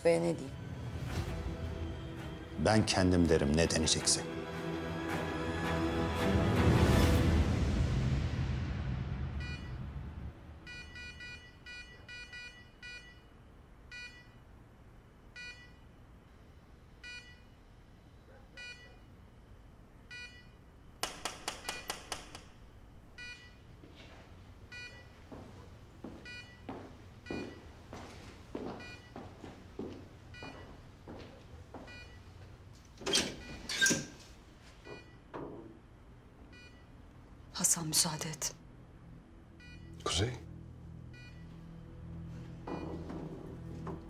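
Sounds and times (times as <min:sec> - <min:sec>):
patient monitor beeping: 0:10.6 - 0:20.8, 0:23.1 - 0:23.8, 0:24.6 - 0:34.1, 0:34.8 - 0:35.3, 0:36.4 - 0:38.5, 0:39.4 - 0:44.0
footsteps on hard floor: 0:25.2 - 0:32.0, 0:42.5 - 0:44.0.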